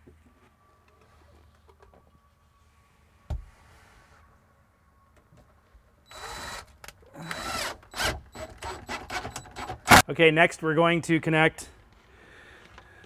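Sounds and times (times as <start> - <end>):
power drill driving screw: 6.1 - 10.0.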